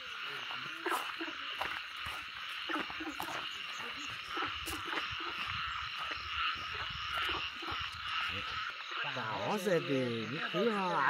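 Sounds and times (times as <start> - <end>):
frogs and insects chorus: 0.0 - 11.0
footsteps: 0.1 - 8.6.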